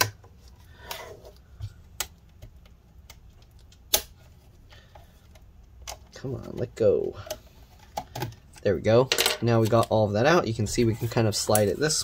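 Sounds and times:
plastic clips snapping: 0:02.0 - 0:04.2.

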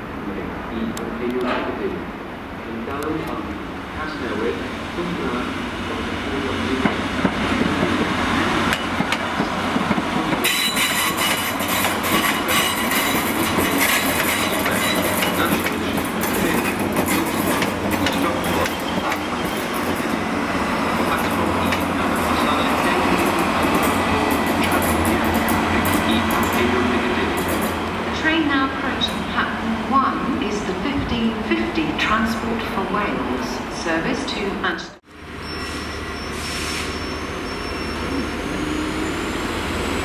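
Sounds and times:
train rumbling past: 0:00.0 - 0:40.0
high wheel squeal: 0:10.4 - 0:15.4, 0:35.4 - 0:40.0.

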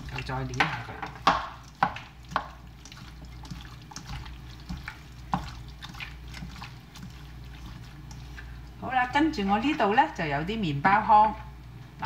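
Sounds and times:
wet squelching of fish in egg: 0:01.5 - 0:08.8.

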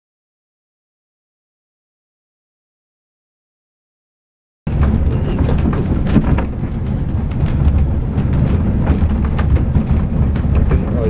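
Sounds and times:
wind buffeting microphone: 0:04.7 - 0:11.0.

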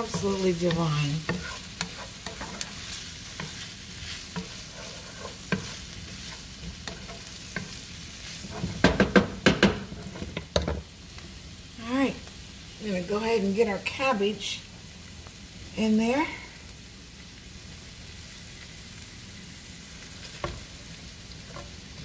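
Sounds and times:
wooden spatula scraping pan: 0:00.0 - 0:10.6
food sizzling in oil: 0:00.0 - 0:22.0.

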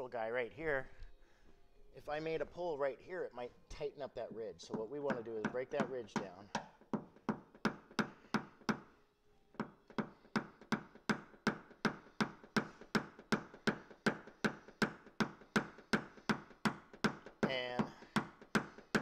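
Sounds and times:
hammer tapping punch on metal: 0:09.6 - 0:19.0.

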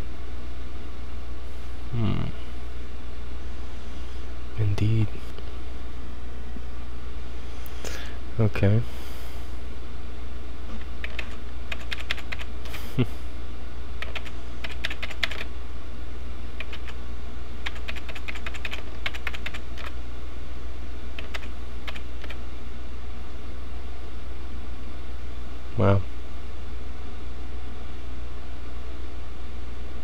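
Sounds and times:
steady low hum: 0:00.0 - 0:30.0
keyboard typing clicks: 0:11.0 - 0:12.5, 0:14.0 - 0:15.5, 0:16.6 - 0:17.0, 0:17.6 - 0:19.9, 0:21.2 - 0:22.4.

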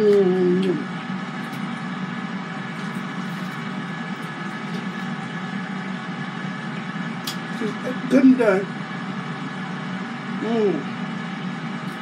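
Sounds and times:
air fryer fan whirring: 0:00.0 - 0:12.0.

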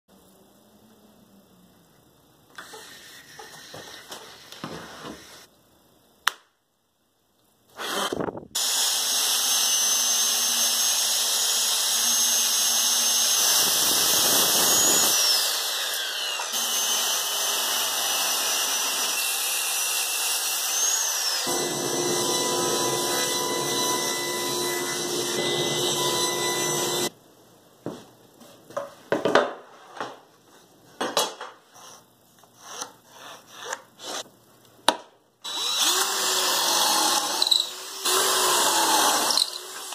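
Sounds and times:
circular saw cutting plywood: 0:07.8 - 0:27.1
pencil marking on plywood: 0:31.7 - 0:34.3.

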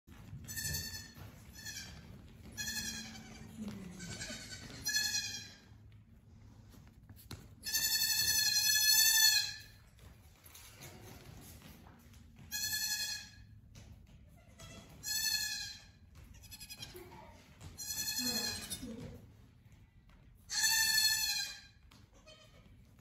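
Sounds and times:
goat kids bleating: 0:00.5 - 0:05.8, 0:07.6 - 0:09.8, 0:12.5 - 0:13.5, 0:14.4 - 0:19.0, 0:20.5 - 0:22.7.

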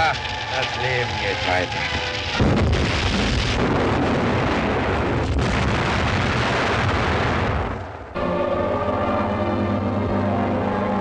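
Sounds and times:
artillery shell explosion: 0:01.7 - 0:08.1.

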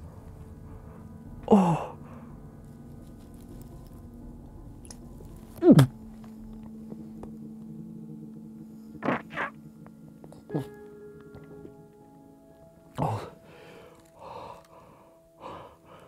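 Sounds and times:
faint steady hum: 0:00.0 - 0:16.0
man groaning in disgust: 0:01.5 - 0:02.0.

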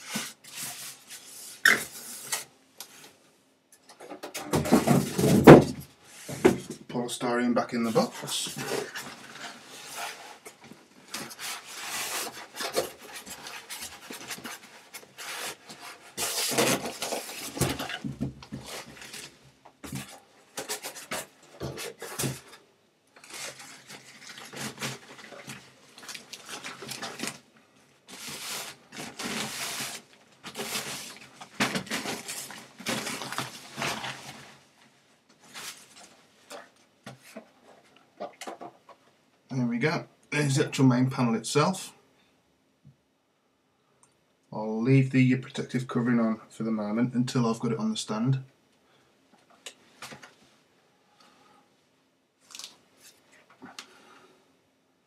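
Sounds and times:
polystyrene blocks scraping: 0:00.0 - 0:02.5, 0:07.8 - 0:22.6, 0:23.2 - 0:27.5, 0:28.1 - 0:34.8
foam sleeve rustling: 0:07.9 - 0:22.5, 0:23.2 - 0:27.5, 0:28.1 - 0:34.8, 0:35.4 - 0:36.6.

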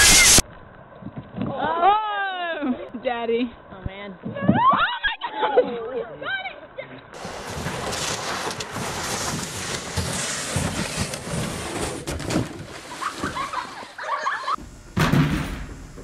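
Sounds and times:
kayak sliding on snow: 0:07.2 - 0:14.6.

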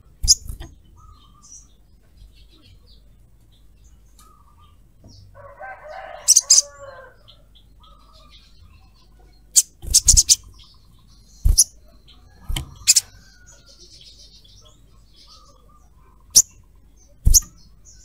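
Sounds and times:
bird chirping: 0:00.0 - 0:18.0
wings fluttering: 0:00.2 - 0:00.8, 0:09.6 - 0:10.6, 0:11.4 - 0:13.5, 0:17.2 - 0:17.6.

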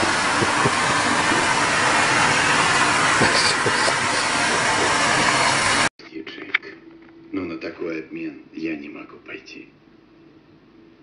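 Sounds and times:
vacuum cleaner running: 0:00.0 - 0:05.9.

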